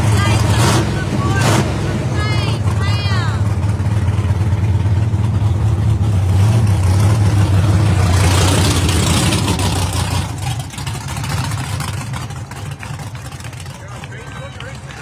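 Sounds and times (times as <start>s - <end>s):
pickup truck engine running: 0.0s - 15.0s.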